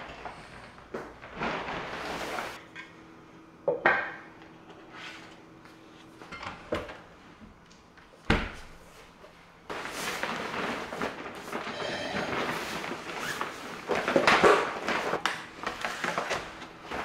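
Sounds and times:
fabric bag rustling: 0:09.7 - 0:15.2.

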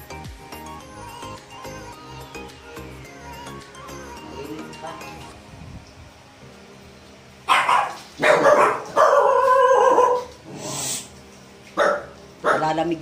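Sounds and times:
dog barking: 0:07.5 - 0:10.3, 0:11.8 - 0:12.8.

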